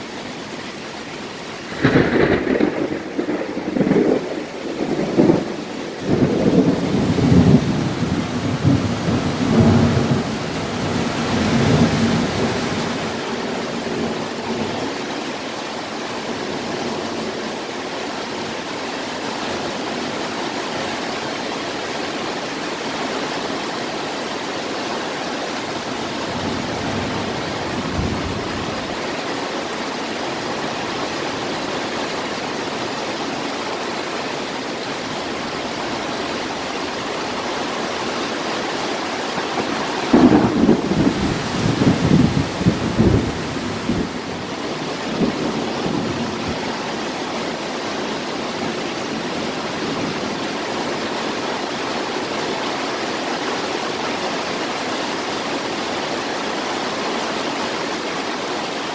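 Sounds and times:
heavy rain falling: 0.0 - 58.9
thunder rumbling: 1.6 - 14.8, 25.8 - 29.1, 39.3 - 46.8.

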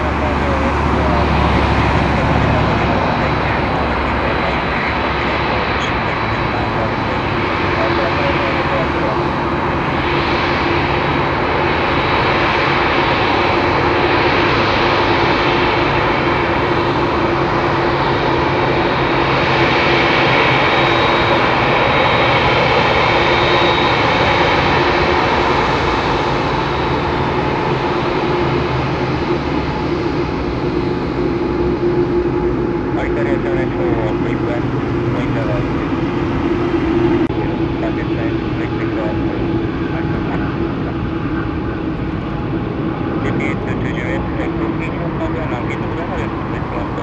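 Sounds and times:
jet engines rumbling and whining: 0.0 - 47.0.

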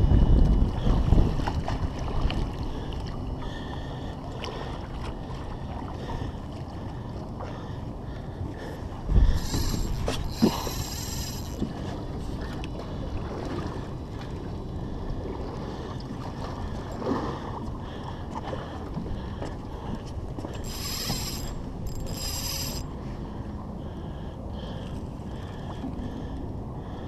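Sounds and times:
wind and water rumble: 0.0 - 27.0
fishing reel whirring: 9.2 - 12.6, 20.4 - 23.1.

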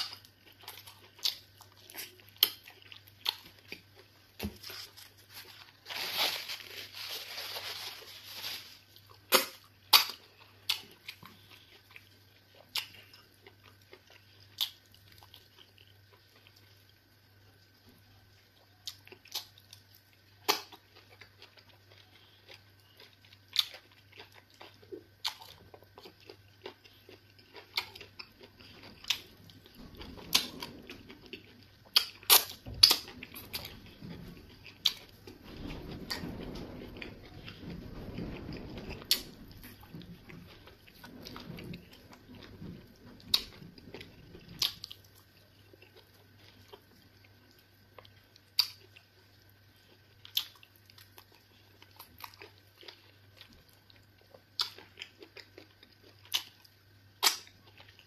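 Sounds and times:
soft chewing: 0.0 - 5.9, 8.8 - 58.0
faint steady hum: 0.0 - 58.0
wet eating smacks and clicks: 57.2 - 57.6.

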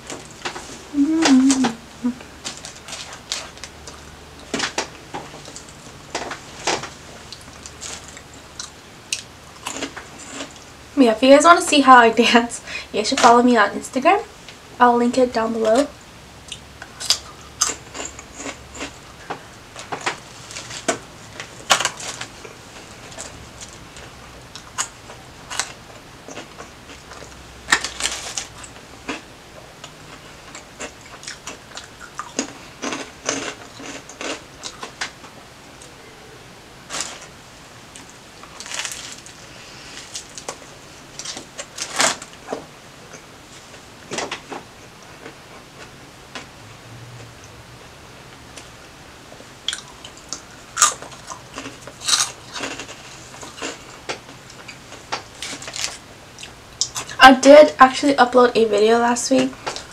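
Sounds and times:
crunching and chewing snacks: 2.4 - 10.7, 16.5 - 35.2, 36.9 - 37.3, 37.9 - 43.3, 49.6 - 57.2.

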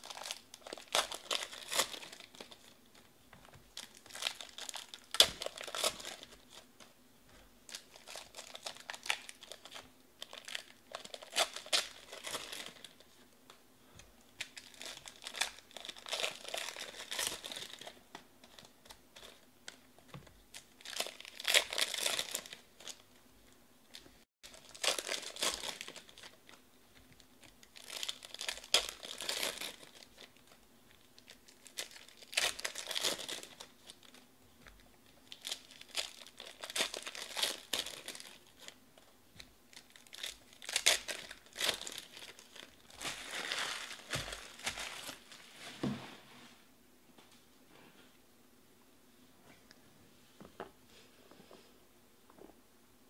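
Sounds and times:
foil wrappers crinkling and tearing: 0.0 - 2.7, 3.7 - 6.7, 7.7 - 13.2, 14.4 - 19.8, 20.5 - 23.0, 23.9 - 26.6, 27.4 - 34.2, 35.2 - 38.8, 39.7 - 45.4.

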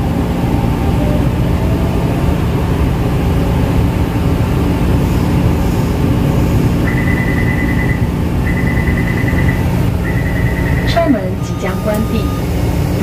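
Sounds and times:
machine hum and rumble: 0.0 - 13.0
high rapidly pulsing tone: 6.8 - 12.5.

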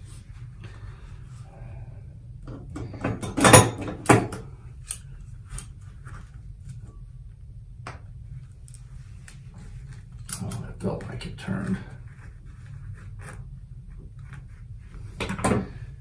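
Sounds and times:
pliers clattering on countertop: 2.8 - 4.4.

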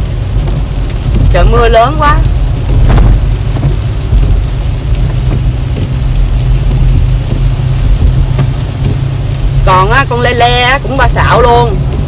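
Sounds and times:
car low rumble: 0.0 - 12.0
heavy rain on a car: 0.0 - 12.0.

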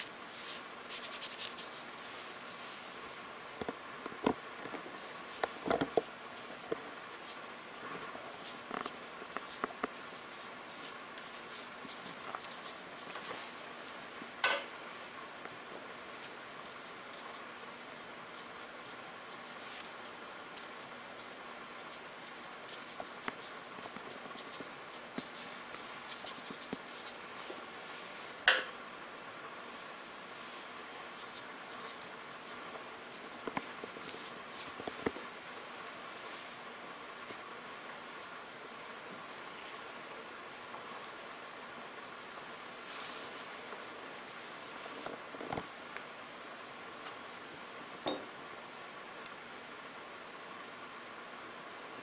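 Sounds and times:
brush tapping and rubbing on paper: 0.0 - 2.7, 3.6 - 14.3, 16.1 - 28.8, 31.1 - 35.3
faint hiss: 4.8 - 52.0.

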